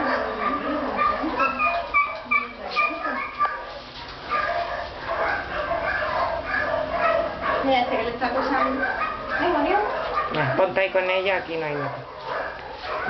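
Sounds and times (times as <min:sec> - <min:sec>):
dog whimpering and yipping: 0:00.0 - 0:03.6, 0:04.3 - 0:07.7, 0:08.3 - 0:10.7
dog whining: 0:00.0 - 0:03.7, 0:04.3 - 0:10.8.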